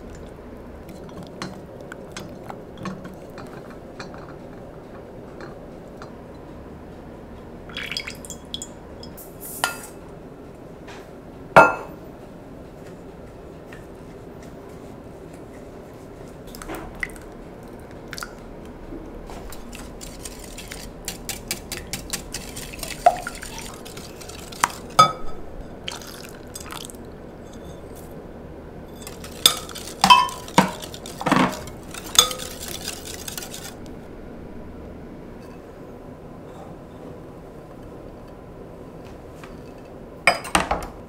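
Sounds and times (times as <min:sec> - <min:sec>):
wire whisk clinking on glass bowl: 0:29.0 - 0:33.7.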